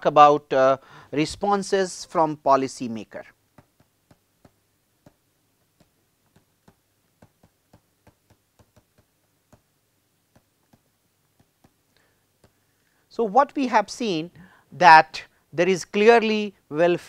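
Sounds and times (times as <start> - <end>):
stylus clicking on pen tablet: 3.5 - 12.7.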